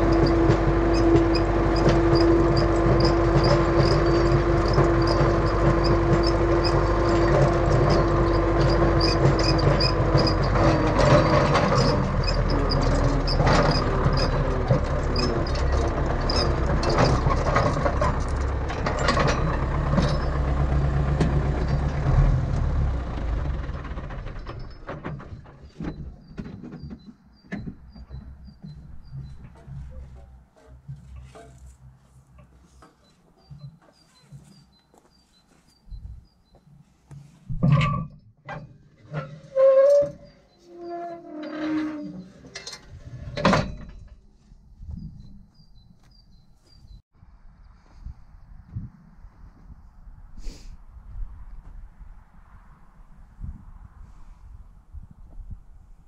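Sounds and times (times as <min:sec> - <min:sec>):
scattered clicks and knocks: 0:00.0 - 0:22.0, 0:23.6 - 0:31.7
engine whine: 0:00.0 - 0:26.0
tractor diesel engine under load: 0:00.0 - 0:34.8.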